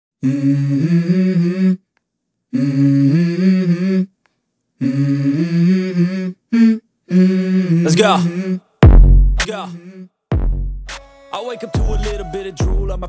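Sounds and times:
low voice humming a melody: 0.2 - 1.8.

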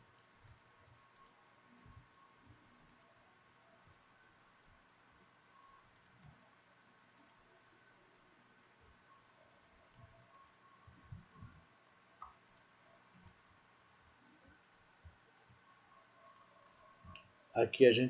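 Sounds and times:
low room hiss: 0.0 - 18.0
computer mouse clicks: 0.2 - 1.4, 2.9 - 3.1, 5.9 - 6.4, 7.2 - 7.4, 8.6 - 8.8, 9.9 - 11.5, 12.2 - 13.4, 16.2 - 17.3.

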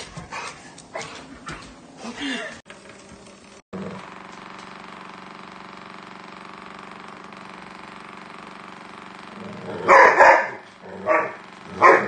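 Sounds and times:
electric toothbrush buzzing on floor: 2.7 - 12.0
dog barking: 9.9 - 12.0.

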